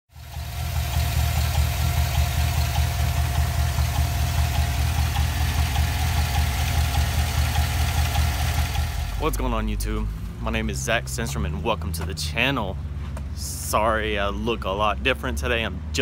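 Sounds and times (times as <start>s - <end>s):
engine ticking: 0.1s - 12.5s
truck engine idling: 0.1s - 15.6s.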